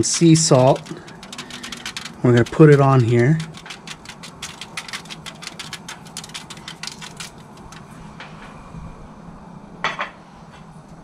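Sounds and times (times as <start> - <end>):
salt grinder crackling clicks: 0.6 - 7.8.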